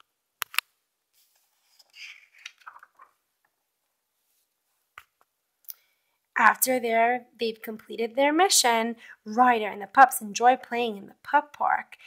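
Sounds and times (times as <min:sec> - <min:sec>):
paper page rustling: 0:01.2 - 0:03.3
fingers tapping page: 0:01.8 - 0:03.2.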